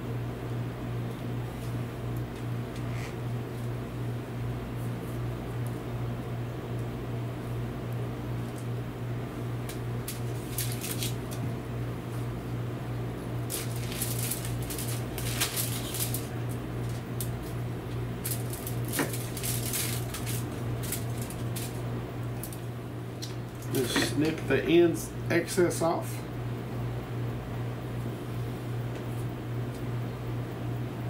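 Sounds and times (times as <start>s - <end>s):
paper and foil crinkling: 9.7s - 11.4s, 13.4s - 22.7s.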